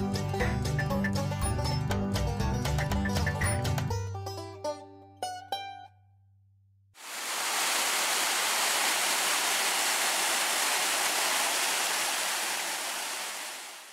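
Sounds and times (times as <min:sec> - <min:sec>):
waterfall rushing: 0:07.0 - 0:13.9.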